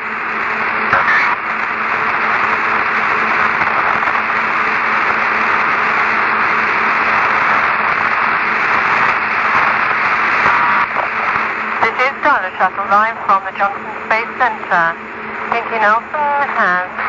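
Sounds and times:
radio static hiss: 0.0 - 17.0
faint low hum: 0.1 - 17.0.

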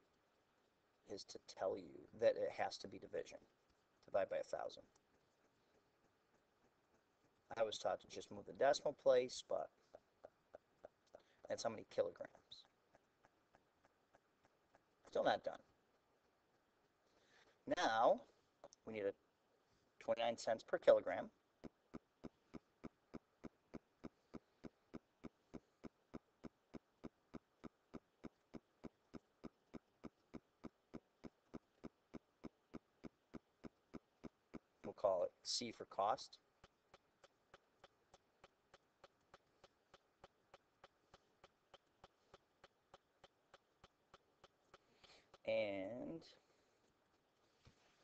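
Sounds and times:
faint regular ticking: 2.7 - 17.7, 36.3 - 45.5
faint ticks: 9.9 - 15.6.

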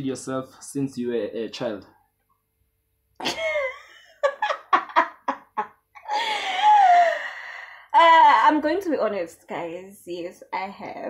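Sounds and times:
woman laughing: 3.2 - 7.3.

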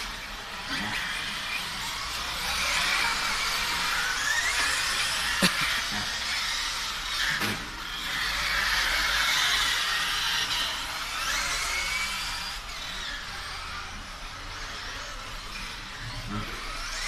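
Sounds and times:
radio-controlled cars motor whine: 0.0 - 17.0.

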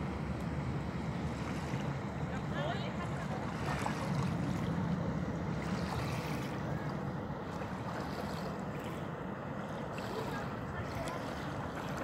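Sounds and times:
ship engines droning: 0.0 - 12.0
small waves washing on pebbles: 7.4 - 12.0.

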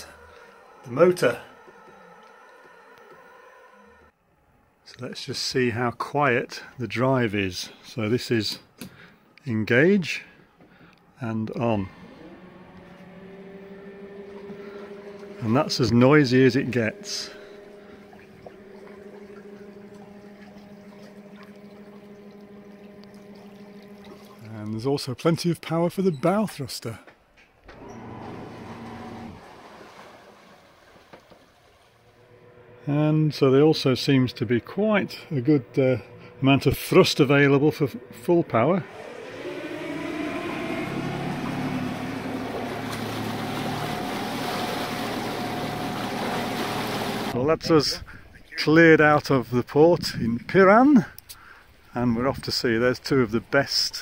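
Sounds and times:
electric motor humming: 0.0 - 4.2, 11.2 - 24.6, 27.7 - 29.6, 32.0 - 47.4
propeller water churning: 0.0 - 4.2, 10.2 - 25.8, 27.6 - 48.6, 49.6 - 54.0.

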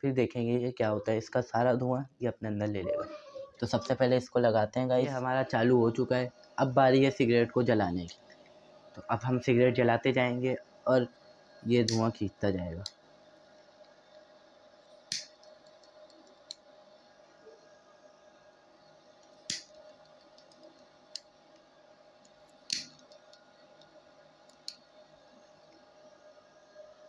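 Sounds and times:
small fan humming: 0.0 - 27.0
pocket lighter strikes: 15.1 - 15.3, 19.5 - 19.8, 22.7 - 23.0.

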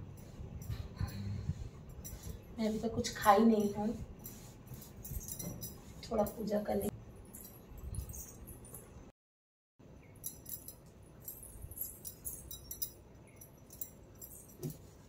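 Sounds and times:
bangles jingling: 0.0 - 9.1, 10.2 - 15.0
small brass items clinking: 3.2 - 6.5, 7.2 - 9.0, 10.2 - 15.0.

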